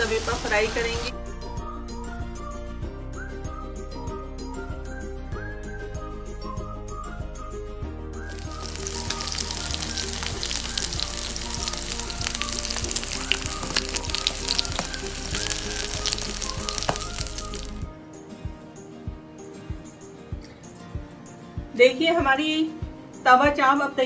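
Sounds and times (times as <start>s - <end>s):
background music: 0.0s - 24.0s
meat sizzling with pops: 8.3s - 17.9s.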